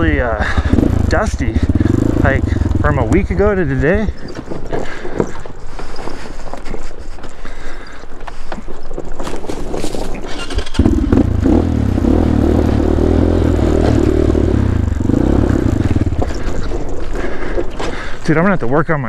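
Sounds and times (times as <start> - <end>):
dirt bike engine running: 0.0 - 19.0.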